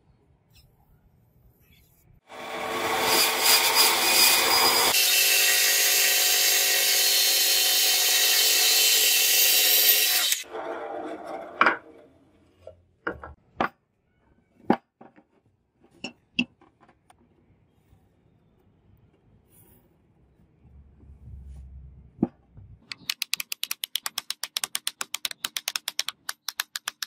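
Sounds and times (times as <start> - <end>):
band saw cutting wood: 2.3 - 11.6
sharp knocks and taps: 22.2 - 27.0.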